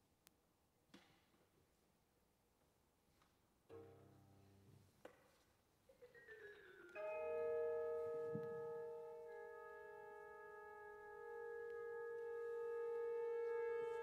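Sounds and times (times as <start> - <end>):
chamber ensemble music: 6.4 - 14.0.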